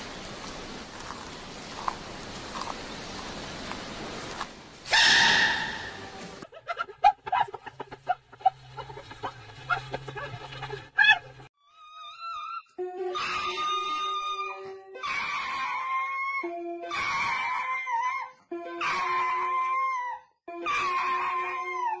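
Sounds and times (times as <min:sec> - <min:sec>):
old recording hiss: 0:00.0 - 0:06.4.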